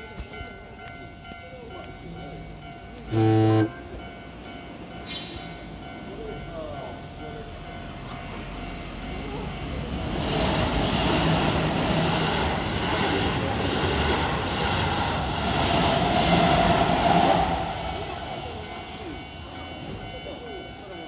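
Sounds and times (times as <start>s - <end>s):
crossing warning bell ringing: 0.0s - 9.9s, 17.6s - 21.0s
train wheels rumbling on rails: 3.8s - 21.0s.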